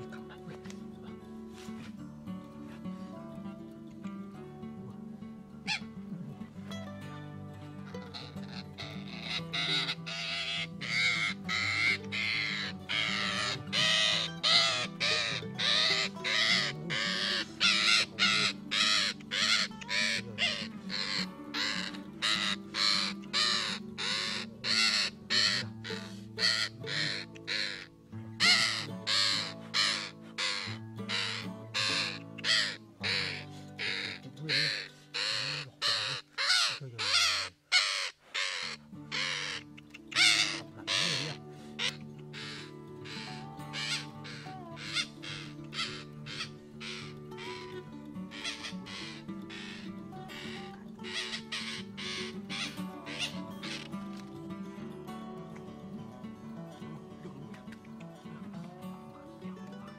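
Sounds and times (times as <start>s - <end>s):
background music: 0.0s - 36.2s, 38.6s - 59.9s
parakeet squawking: 7.9s - 53.9s.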